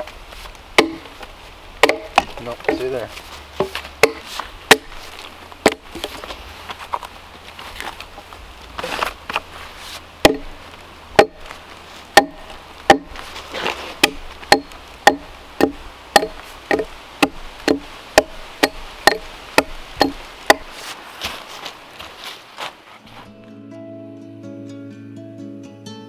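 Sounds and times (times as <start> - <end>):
axe striking a log: 0.8 - 1.2, 1.8 - 2.8, 3.6 - 6.2, 10.2 - 20.8.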